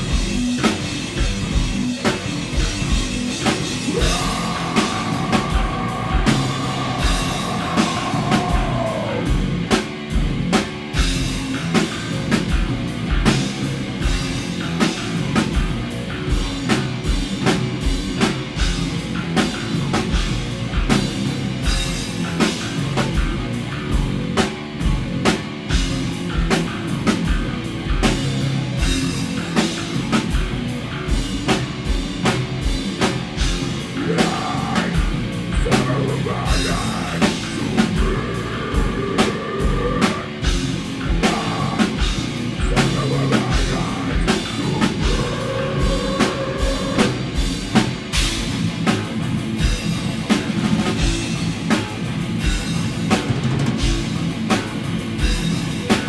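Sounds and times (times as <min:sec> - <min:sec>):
drum kit beating: 0:00.0 - 0:56.0
hardcore band playing live: 0:00.0 - 0:56.0.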